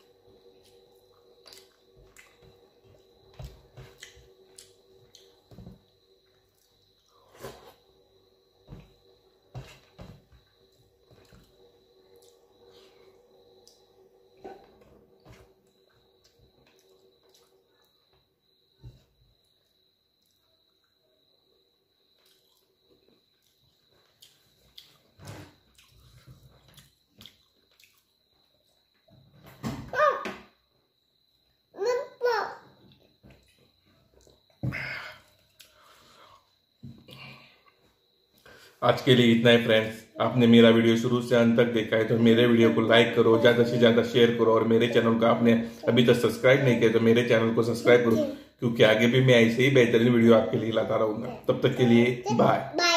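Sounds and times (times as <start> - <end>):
faint high whine: 0.0 - 24.6, 33.5 - 52.8
chewing and lip smacks: 25.7 - 28.1.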